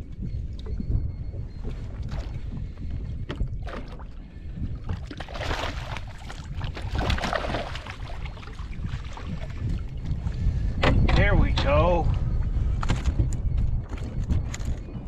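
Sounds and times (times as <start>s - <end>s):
wind rumbling on microphone: 0.0s - 15.0s
water slapping against boat hull: 1.7s - 4.2s, 4.8s - 11.2s.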